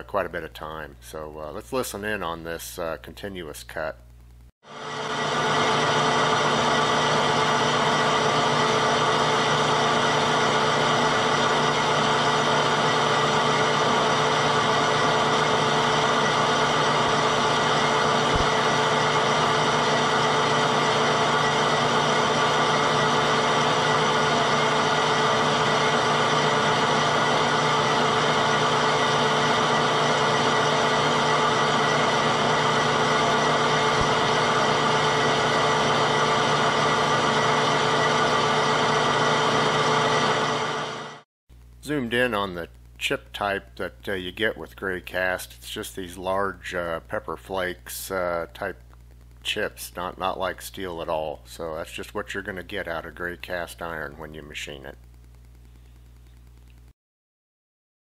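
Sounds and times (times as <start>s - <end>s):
metal lathe cutting: 4.7s - 41.2s.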